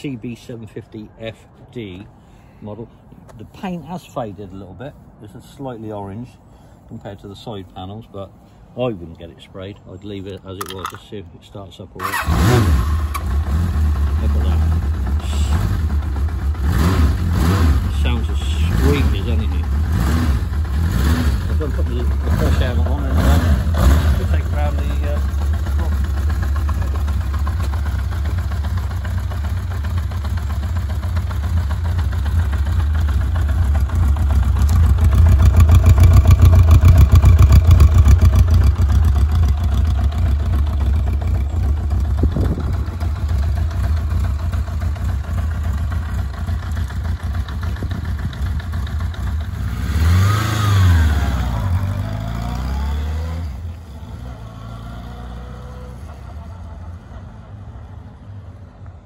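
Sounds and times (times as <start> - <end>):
motorcycle pulling away: 12.0 - 58.0
motorcycle engine idling: 12.9 - 49.8.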